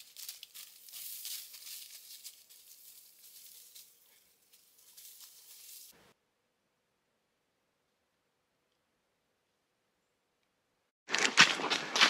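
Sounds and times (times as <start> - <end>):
footsteps on dry leaves: 0.0 - 6.0.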